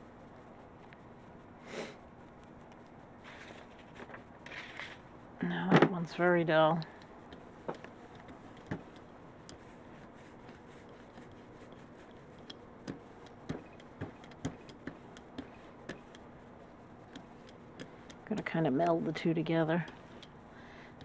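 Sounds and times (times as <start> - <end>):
rubber roller clicking: 6.0 - 21.0.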